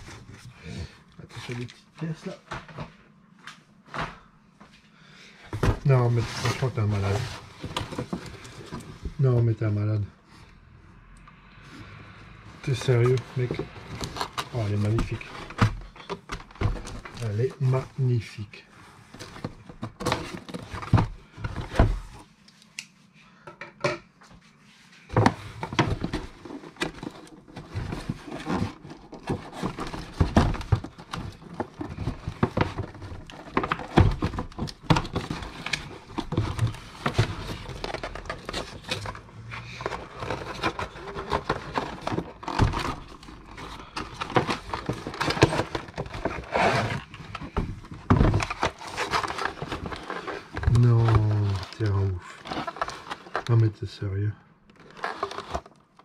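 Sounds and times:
hands handling packaging: 12.6 - 22.3, 25.1 - 56.0.

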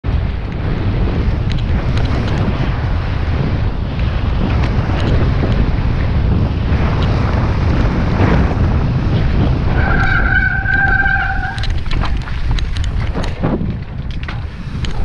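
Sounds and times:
wind buffeting microphone: 0.0 - 15.0
high steady squeal: 9.6 - 12.0
sharp rattles: 9.9 - 15.0.

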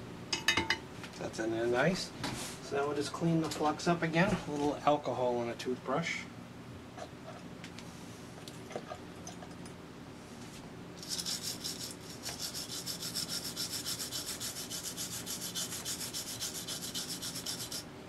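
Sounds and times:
toothbrush scrubbing circuit board: 11.0 - 17.9.

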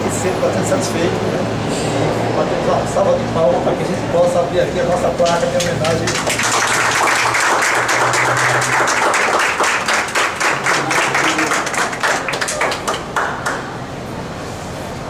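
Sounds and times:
group applauding: 4.9 - 13.9.

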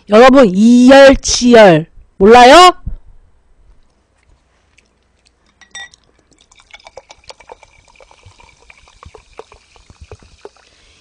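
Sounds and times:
drink pouring into glass: 5.4 - 11.0.

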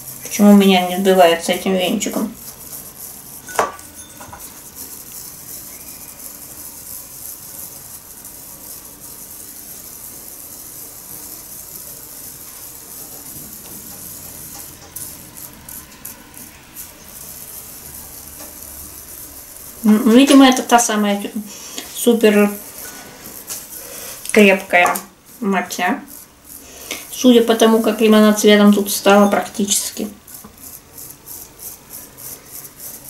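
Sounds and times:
whisk swishing tea in bowl: 0.0 - 33.0
whisk knocking against bowl: 3.4 - 4.6.

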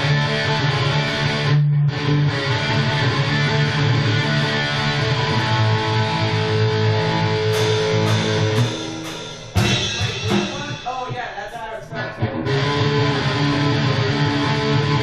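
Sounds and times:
strummed guitar chord: 0.0 - 15.0
sharp drum crashes: 7.6 - 11.5.

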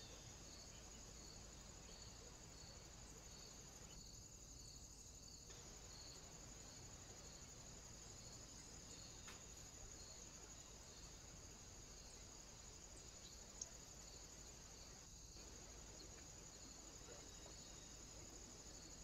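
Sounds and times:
small click: 9.2 - 9.5.

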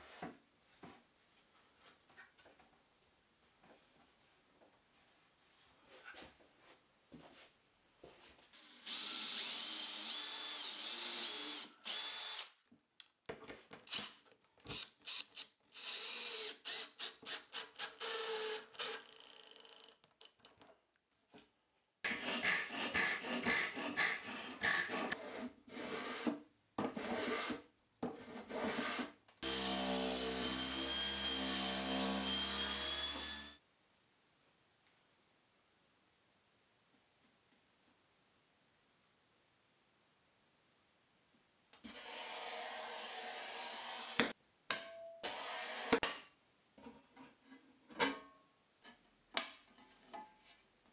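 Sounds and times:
cordless drill driving screws into wood: 8.7 - 12.6.

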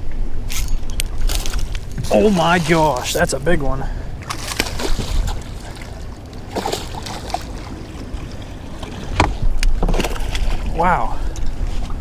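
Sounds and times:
rush of wind and water: 0.0 - 12.0
fish splashing at surface: 4.2 - 5.9.

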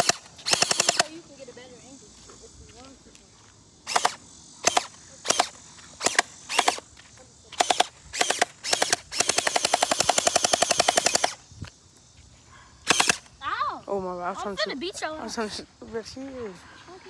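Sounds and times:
gel blasters firing bursts: 0.0 - 1.1, 3.9 - 6.8, 7.6 - 11.4, 12.9 - 13.3.

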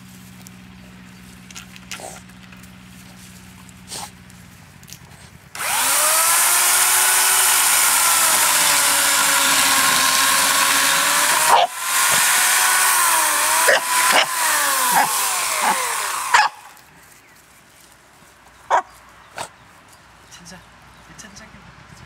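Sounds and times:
buzzsaw engine revving: 5.5 - 16.8.

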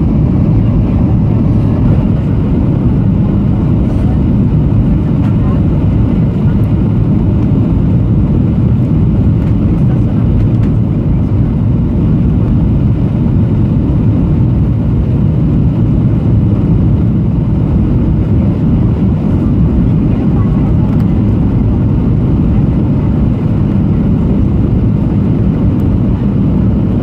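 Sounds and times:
airplane cabin engine rumble: 0.0 - 27.0.

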